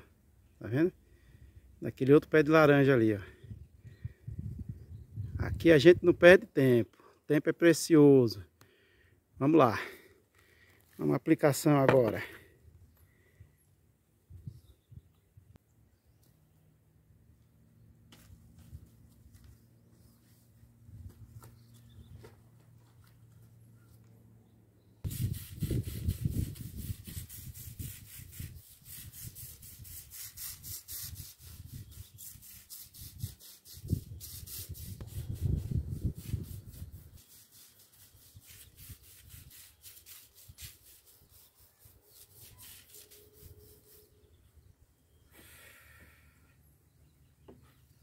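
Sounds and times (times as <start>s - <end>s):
hand pump sprayer scraping strokes: 25.1s - 44.2s.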